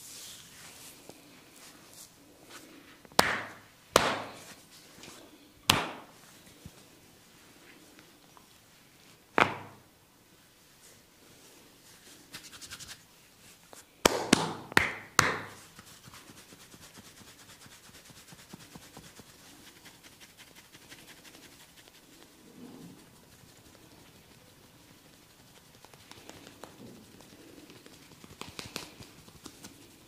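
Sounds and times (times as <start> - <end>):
sharp hand smacks: 3.1 - 4.4, 5.7 - 6.1, 28.4 - 29.0
faint crackling of hands in hair: 18.6 - 30.0
neck crack: 25.8 - 30.0.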